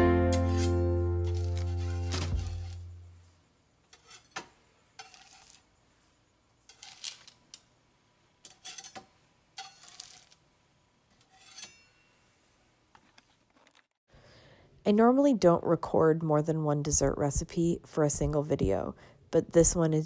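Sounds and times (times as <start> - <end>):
spatula scraping baking sheet: 0.5 - 2.9, 3.9 - 5.7, 6.6 - 7.4, 8.4 - 10.4, 11.2 - 11.9.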